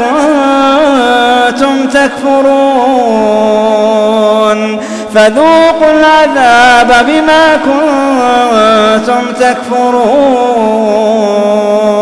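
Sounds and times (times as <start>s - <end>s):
man chanting recitation: 0.0s - 12.0s.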